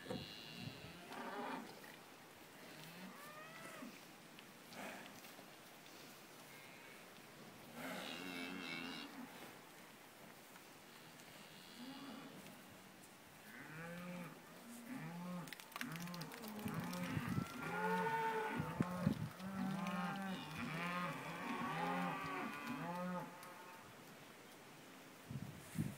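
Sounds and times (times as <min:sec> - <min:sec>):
cattle mooing and bellowing: 0:14.9 - 0:23.8.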